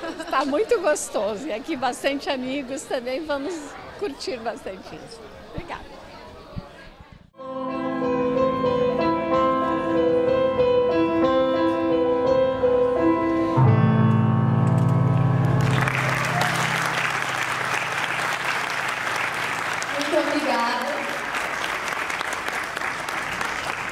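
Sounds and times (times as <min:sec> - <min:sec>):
slow piano melody: 0:07.4 - 0:19.9
applause: 0:15.4 - 0:23.9.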